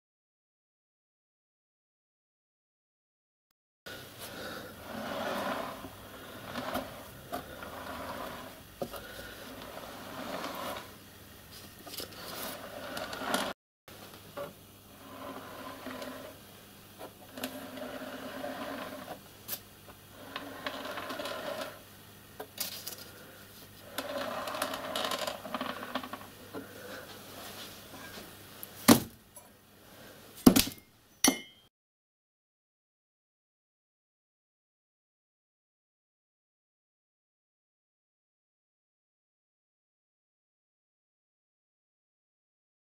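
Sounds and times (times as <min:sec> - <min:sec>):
metal scraping on wooden bench: 0:04.3 - 0:11.0, 0:11.8 - 0:13.6, 0:14.4 - 0:19.2, 0:20.1 - 0:21.8, 0:22.8 - 0:28.3
sharp metallic strikes on anvil: 0:30.5 - 0:31.7.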